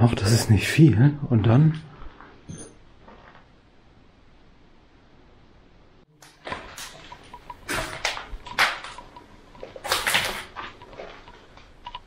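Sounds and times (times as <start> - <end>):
footsteps on rubble: 6.3 - 11.8.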